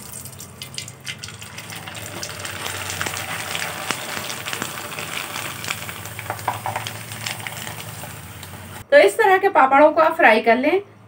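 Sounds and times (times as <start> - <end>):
oil sizzling and crackling: 0.0 - 8.8.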